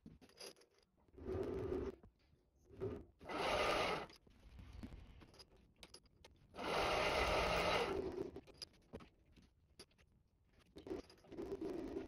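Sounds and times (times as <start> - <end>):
drill cutting into metal part: 3.3 - 4.1, 6.6 - 8.0.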